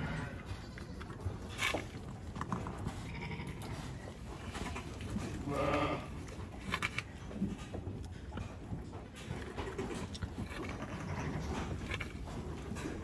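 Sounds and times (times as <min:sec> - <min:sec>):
sheep bleating: 0:05.4 - 0:06.2.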